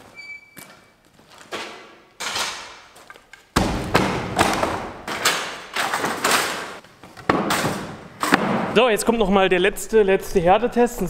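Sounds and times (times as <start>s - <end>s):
wooden boards knocking and clattering: 3.5s - 8.8s.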